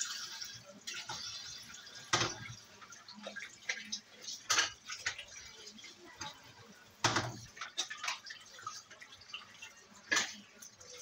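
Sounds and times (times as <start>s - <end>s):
water splashing in a metal sink: 0.0s - 11.0s
fruit and bowls knocking on sink: 7.0s - 7.5s.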